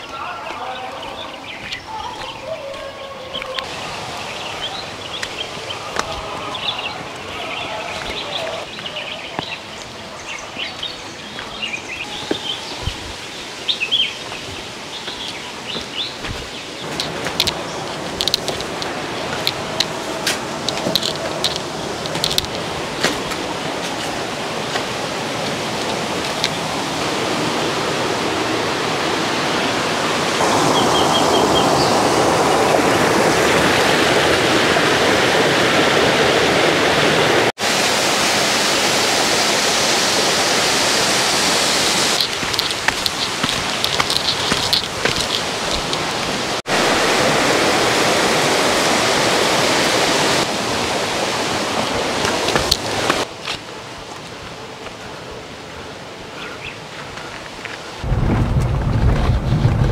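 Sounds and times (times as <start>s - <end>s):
birds chirping: 0.0s - 27.0s, 30.4s - 33.6s, 41.5s - 46.6s, 56.3s - 57.4s
flowing water: 0.0s - 59.9s.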